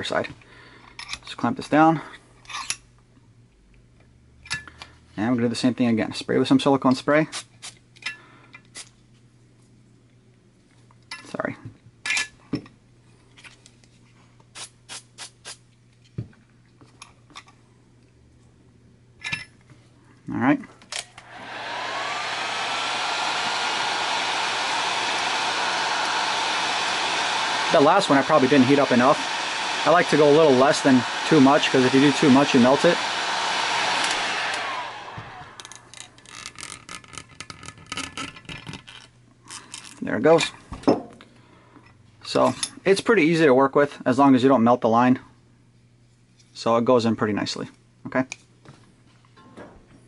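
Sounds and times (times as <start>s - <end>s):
fan winding down: 21.1s - 36.8s
heat gun blowing hot air: 21.2s - 36.2s.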